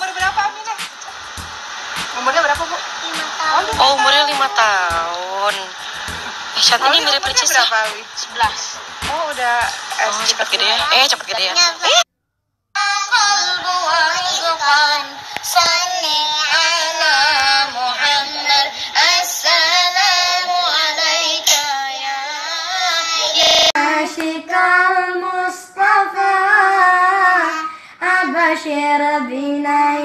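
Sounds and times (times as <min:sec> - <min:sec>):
child singing devotional song: 0:12.8 - 0:30.0
brief burst of noise: 0:23.2 - 0:23.8.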